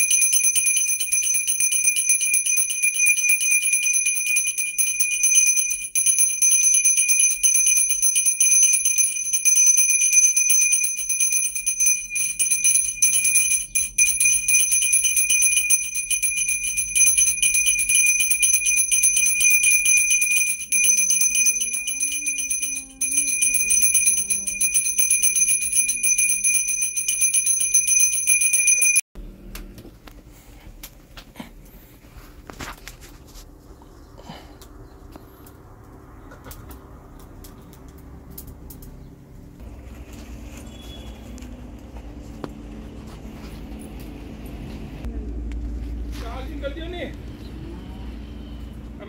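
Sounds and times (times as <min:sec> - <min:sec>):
hand bell ringing rapidly: 0:00.0 - 0:29.1.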